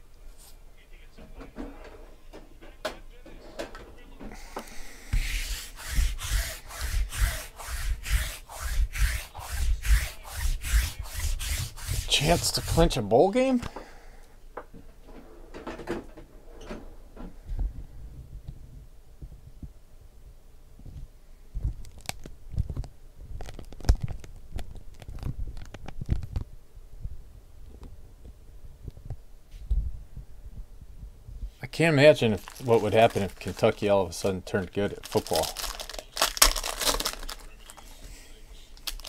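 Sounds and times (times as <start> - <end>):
lint roller rasping on tabletop: 5.1 - 13.0
light crinkling: 21.6 - 26.5, 32.1 - 39.0.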